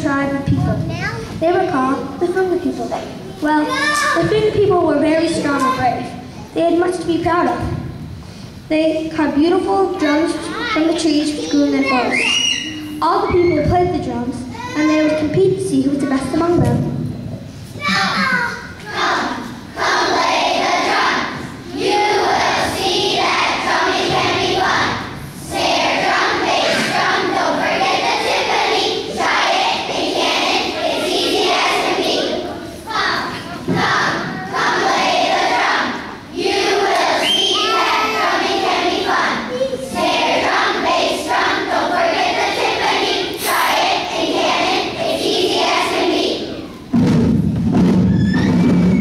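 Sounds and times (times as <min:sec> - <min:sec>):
children's choir singing: 0:17.8 - 0:46.9.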